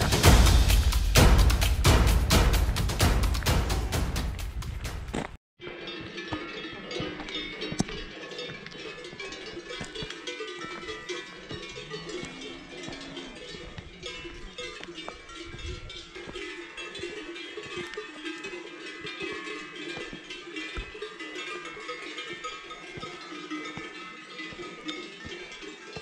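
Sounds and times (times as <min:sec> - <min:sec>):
cowbells clanking: 0:05.6 - 0:26.0.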